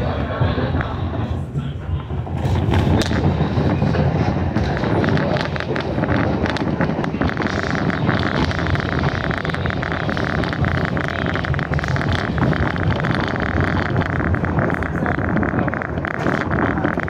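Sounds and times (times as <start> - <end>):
wind noise: 0.0 - 17.0
train wheels clattering on rails: 0.1 - 15.2.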